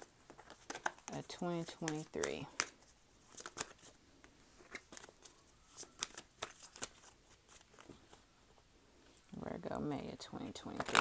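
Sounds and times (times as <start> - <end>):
card edges clicking and tapping: 0.0 - 3.8.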